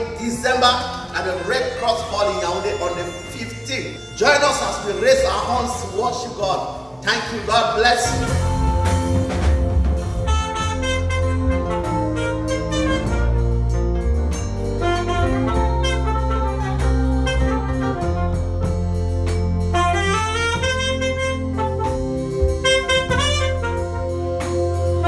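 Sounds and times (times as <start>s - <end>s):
saxophone melody: 1.1s - 7.1s, 8.0s - 25.0s
backing track with bass line: 7.3s - 25.0s.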